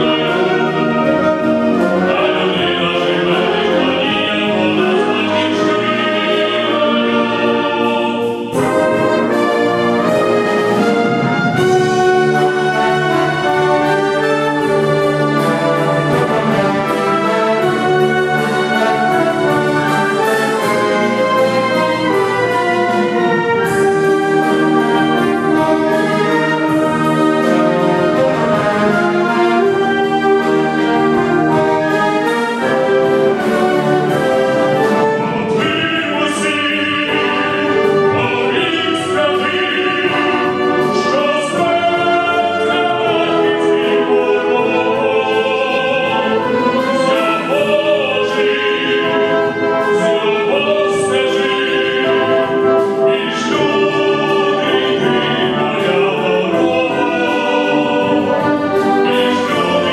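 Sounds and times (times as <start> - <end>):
wind band playing: 0.0 - 59.9
man singing solo: 1.8 - 9.7, 35.5 - 59.9.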